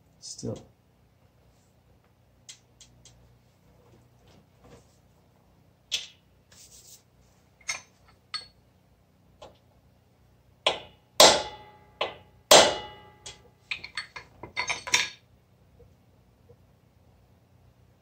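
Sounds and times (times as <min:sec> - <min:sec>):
hammer striking metal: 0:10.7 - 0:15.2.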